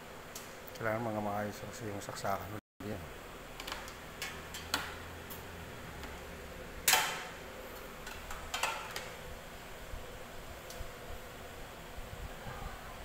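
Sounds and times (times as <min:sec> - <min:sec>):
faint low hum: 0:05.1 - 0:13.0.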